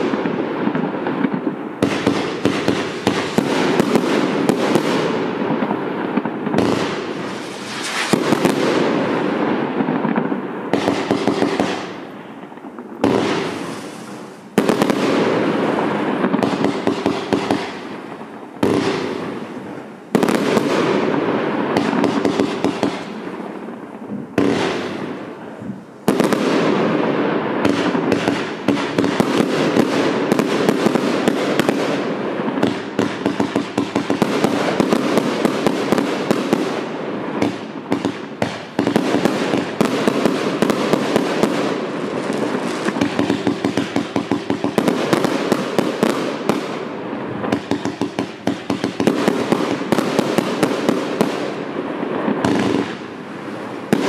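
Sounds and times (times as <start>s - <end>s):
fireworks shots and bursts: 0.0s - 54.0s.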